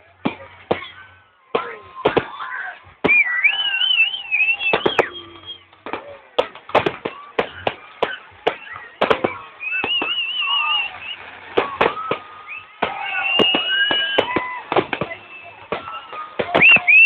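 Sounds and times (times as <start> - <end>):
firework bangs and crackles: 0.0 - 17.0
high wavering firework whistles: 2.0 - 5.7, 7.1 - 17.0.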